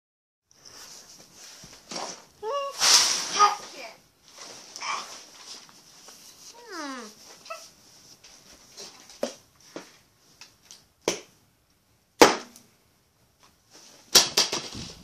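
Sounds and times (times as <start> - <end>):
dog whining: 6.5 - 7.7.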